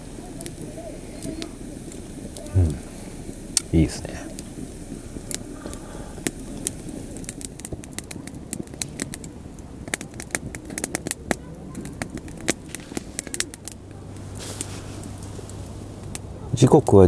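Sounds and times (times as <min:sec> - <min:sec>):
campfire crackling: 0:00.0 - 0:17.0.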